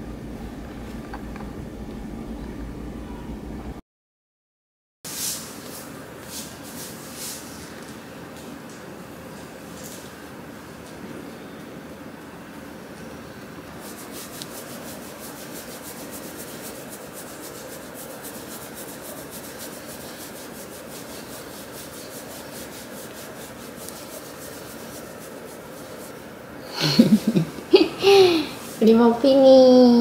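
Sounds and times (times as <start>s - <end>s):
hand scratching fur: 13.8s - 26.2s.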